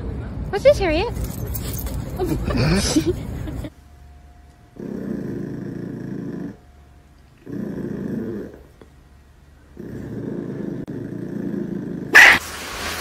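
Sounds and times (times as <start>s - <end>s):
small dog growling: 4.8s - 6.7s, 7.4s - 8.9s, 9.6s - 12.4s.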